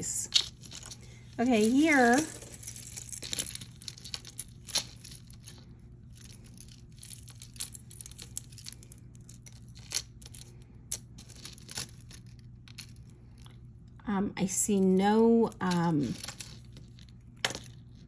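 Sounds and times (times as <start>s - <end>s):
metal jewelry clinking: 0.0s - 13.8s, 15.5s - 18.0s
faint steady hum: 0.0s - 18.0s
rattling and rustling: 0.3s - 13.5s.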